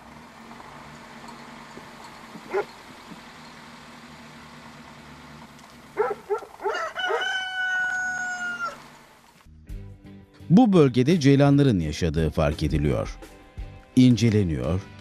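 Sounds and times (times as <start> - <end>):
rooster crowing: 6.0 - 9.0.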